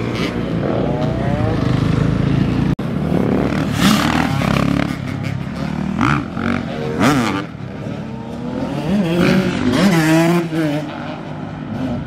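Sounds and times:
motorcycle engines revving hard: 0.0s - 12.0s.

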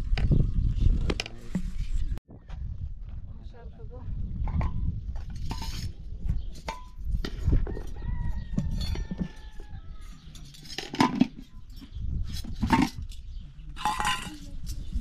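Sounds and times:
clinks and knocks: 4.4s - 15.0s
rooster crowing: 7.7s - 10.2s.

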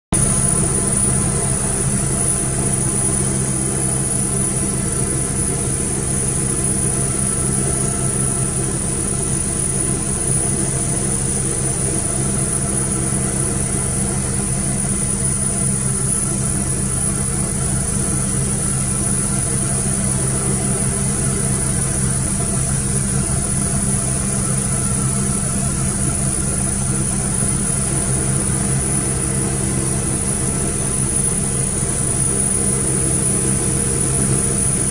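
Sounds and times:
helicopter rotors humming: 0.2s - 34.9s
high turbine whine: 0.2s - 34.9s.

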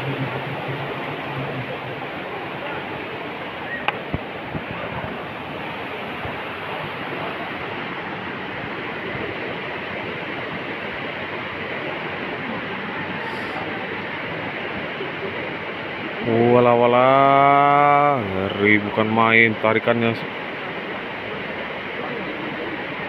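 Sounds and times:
river water flowing: 0.0s - 23.0s.

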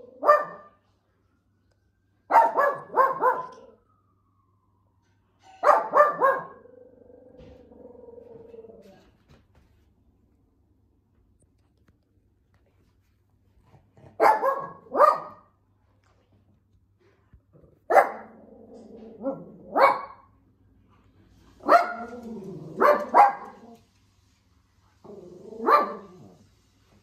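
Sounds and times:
dog barking: 0.2s - 0.8s, 2.3s - 3.7s, 5.6s - 6.6s, 14.1s - 15.5s, 17.9s - 18.4s, 19.2s - 20.3s, 21.6s - 23.8s, 25.6s - 26.3s
dog low drawn-out sound: 2.8s - 4.9s, 6.5s - 9.5s, 16.0s - 23.9s.

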